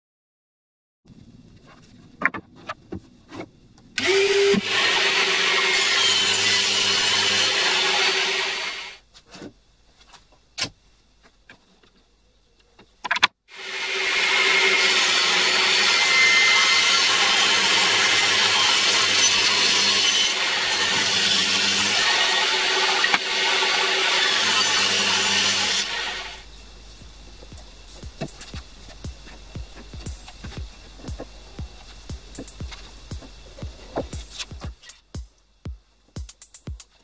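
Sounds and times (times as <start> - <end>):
table saw cutting wood: 4.0 - 9.0, 13.5 - 26.5
steady hum: 25.9 - 37.0.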